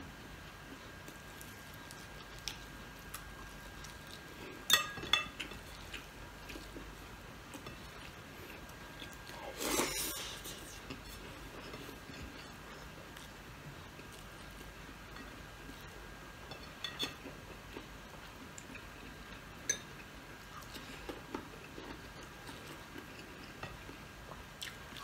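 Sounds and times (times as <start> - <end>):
person chewing crispy food: 0.5 - 16.0, 17.2 - 25.0.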